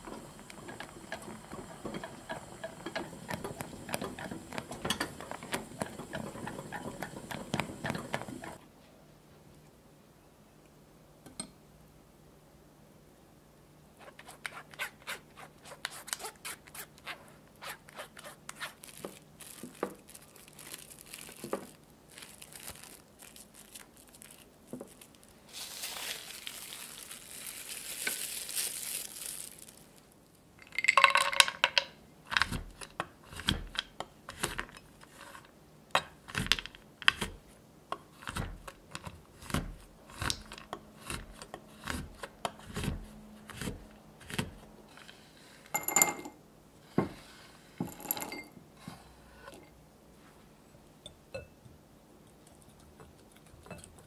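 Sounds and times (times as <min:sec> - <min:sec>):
cling wrap hissing and crinkling: 0:14.0 - 0:30.5.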